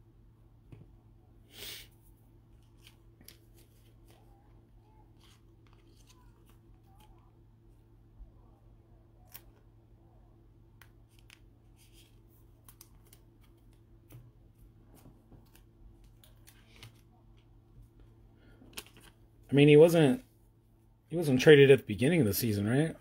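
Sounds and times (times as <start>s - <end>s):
cards sliding into plastic sleeves: 5.2s - 7.2s, 14.9s - 17.1s.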